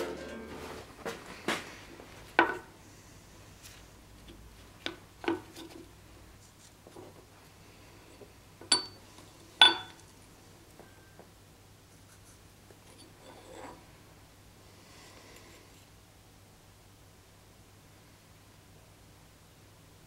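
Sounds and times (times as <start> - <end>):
metallic clinks on workbench: 8.7 - 9.0, 9.6 - 10.0.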